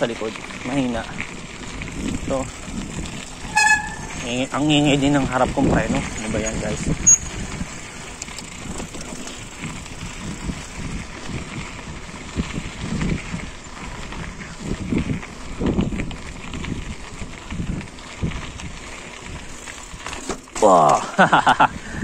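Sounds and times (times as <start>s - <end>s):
bike rattling over rocks: 0.0s - 22.0s
wind noise on microphone: 0.6s - 20.4s, 21.1s - 22.0s.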